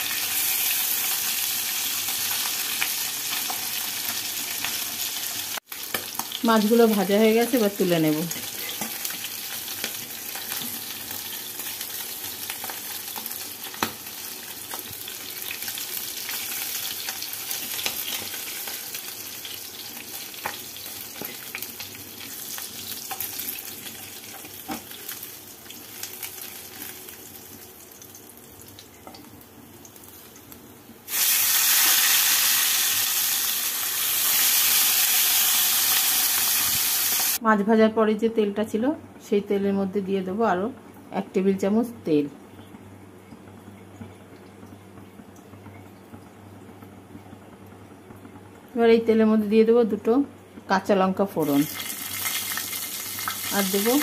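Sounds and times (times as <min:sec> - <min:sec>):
fish sizzling in oil: 0:00.0 - 0:37.4, 0:51.4 - 0:54.0.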